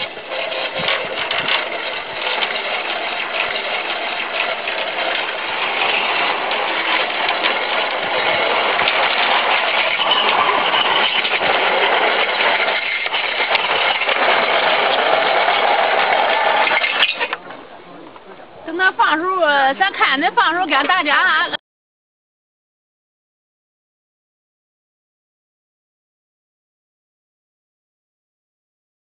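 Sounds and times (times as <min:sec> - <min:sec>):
tile forming machine running: 0:00.0 - 0:18.0.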